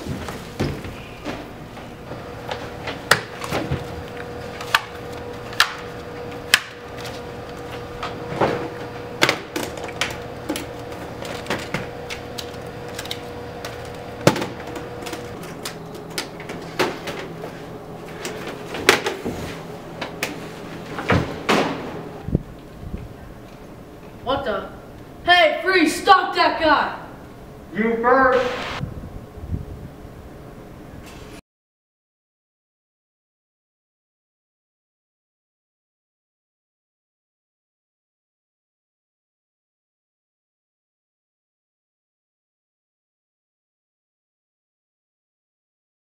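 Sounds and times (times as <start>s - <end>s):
cash register coin tray clattering: 3.3s - 17.4s.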